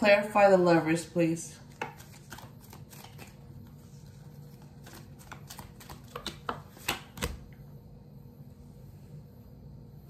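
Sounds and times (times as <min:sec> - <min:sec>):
cards being shuffled: 0:01.6 - 0:07.6.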